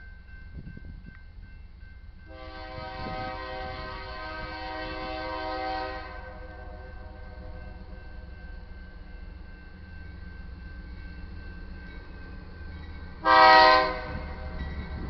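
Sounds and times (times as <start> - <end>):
locomotive air horn blast: 2.3 - 7.6, 13.2 - 14.4.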